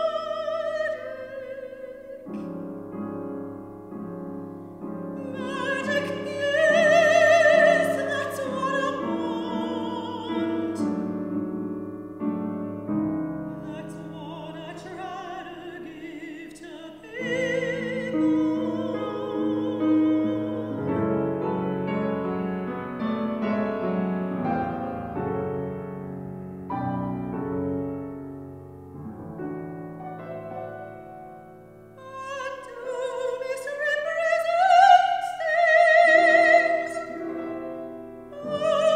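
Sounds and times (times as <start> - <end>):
soprano singing opera: 0.0 - 2.6, 5.1 - 11.3, 13.5 - 22.4, 32.0 - 38.9
grand piano: 0.0 - 38.9.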